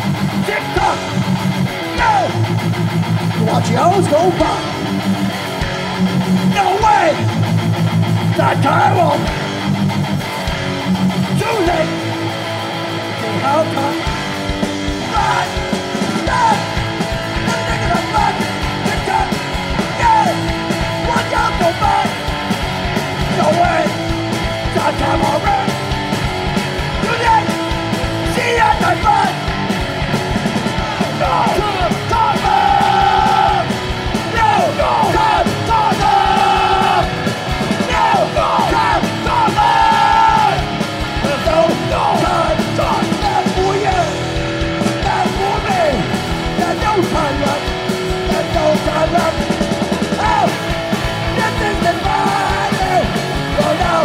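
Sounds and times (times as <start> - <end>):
shouted vocals: 0.0 - 2.6, 6.4 - 7.4, 8.3 - 9.4, 11.2 - 12.2, 14.9 - 22.4, 23.1 - 25.9, 26.9 - 29.7, 30.6 - 54.0
drums hit steadily: 0.0 - 54.0
punk band playing live: 0.0 - 54.0.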